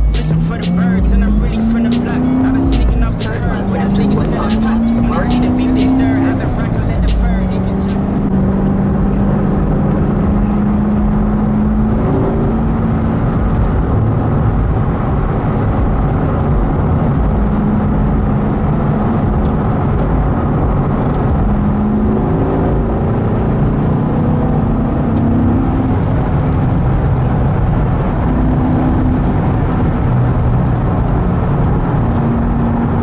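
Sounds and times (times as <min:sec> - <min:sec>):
car engine droning: 0:00.0 - 0:33.0
road rumble: 0:00.0 - 0:33.0.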